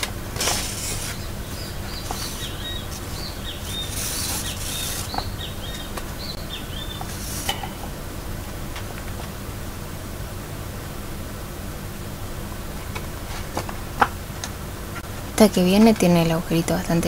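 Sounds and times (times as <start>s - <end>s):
paper pages rustling: 0.0s - 6.0s
steady background hiss: 0.0s - 17.0s
thread drawn through paper: 0.4s - 1.3s, 2.0s - 5.2s, 7.1s - 7.5s.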